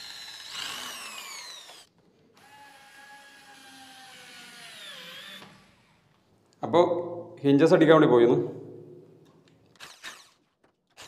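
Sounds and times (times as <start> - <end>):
electric drill drilling into plastic: 0.0 - 6.0, 9.8 - 11.0.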